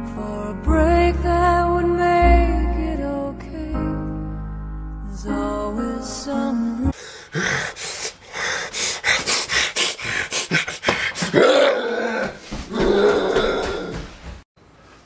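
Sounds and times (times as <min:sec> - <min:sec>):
music: 0:00.0 - 0:07.0
man panting and gasping: 0:07.0 - 0:14.2.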